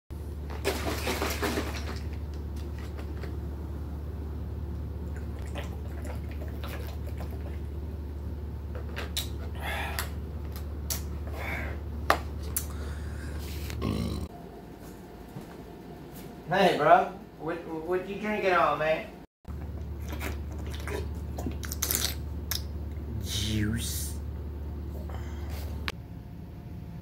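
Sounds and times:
low hum: 1.3s - 14.7s, 19.5s - 27.0s
breaths: 9.5s - 10.1s, 12.6s - 13.8s, 25.0s - 25.8s.

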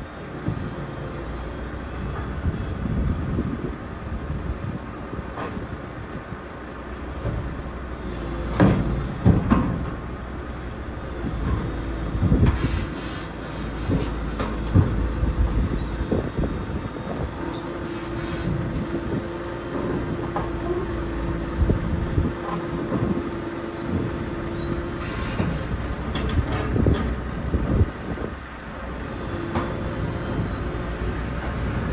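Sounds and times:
excavator diesel engine running: 0.0s - 31.9s
steady mechanical whine: 0.0s - 31.9s
steel tracks clanking: 0.0s - 31.9s
knocks: 8.6s - 10.0s.

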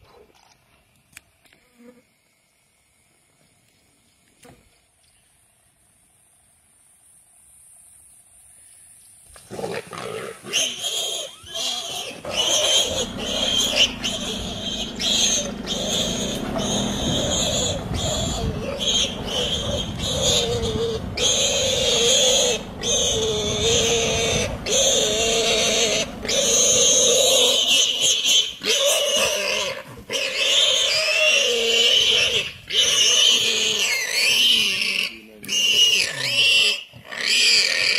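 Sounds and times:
animal cries and growls: 9.5s - 37.9s.

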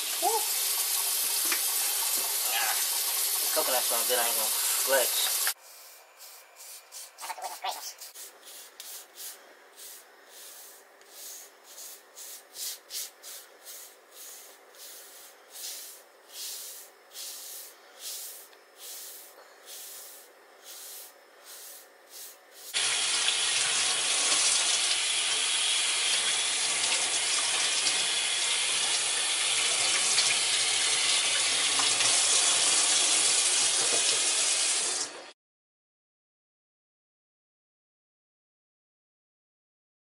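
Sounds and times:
hairbrush swishing through hair: 5.5s - 22.8s.

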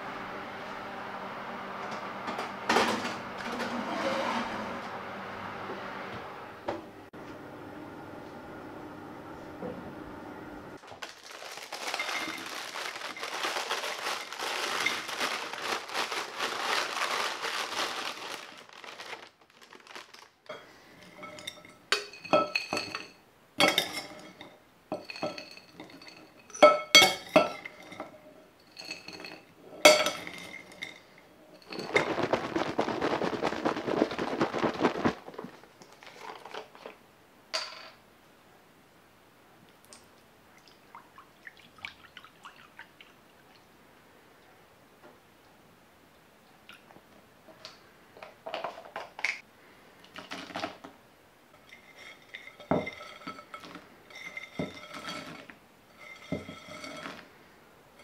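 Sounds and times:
granola pouring into a glass jar: 11.0s - 20.3s, 31.6s - 36.4s.

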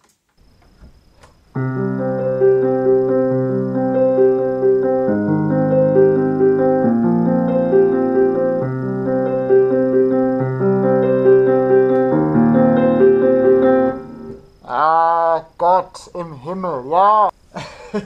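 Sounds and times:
piano playing: 1.6s - 14.6s.

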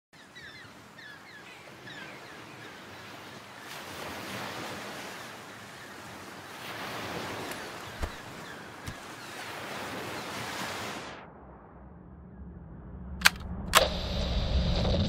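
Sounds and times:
ocean surf washing: 0.2s - 11.2s
low hum: 11.2s - 15.0s
sharp clicks: 13.2s - 14.0s.

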